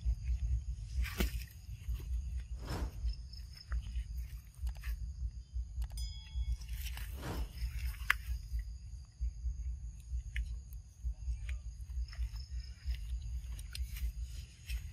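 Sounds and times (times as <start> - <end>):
insects chirping in chorus: 0.0 - 14.9
low microphone rumble: 0.0 - 14.9.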